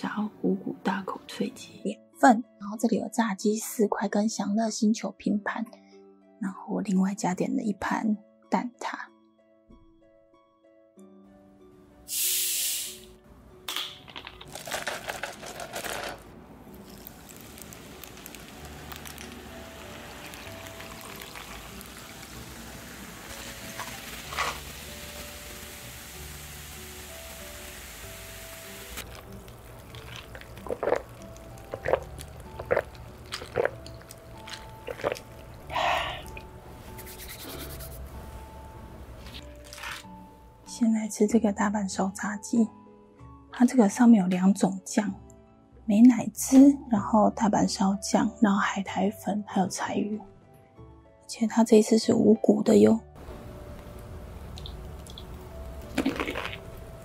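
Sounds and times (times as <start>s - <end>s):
soft background music: 0.0s - 57.0s
hiss of bottle opening: 12.1s - 13.1s
cola pouring over ice: 14.4s - 16.2s, 16.8s - 24.8s, 28.9s - 36.4s, 39.3s - 40.1s, 54.5s - 56.9s
cola fizzing: 16.8s - 25.9s, 28.3s - 36.5s, 39.3s - 40.1s, 54.4s - 57.0s
person gulping a drink: 29.1s - 36.4s, 55.9s - 56.8s.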